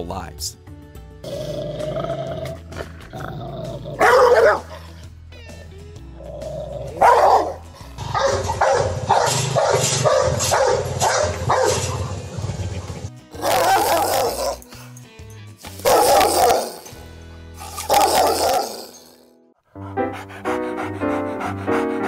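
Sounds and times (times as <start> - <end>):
background music: 0.0 - 22.0
dogs barking: 3.7 - 4.9, 6.8 - 12.3, 13.4 - 14.7, 15.7 - 17.0, 17.7 - 18.9.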